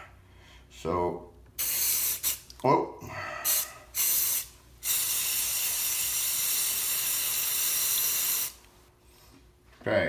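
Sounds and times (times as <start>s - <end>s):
spray paint can hissing: 1.6s - 2.5s, 3.5s - 8.6s.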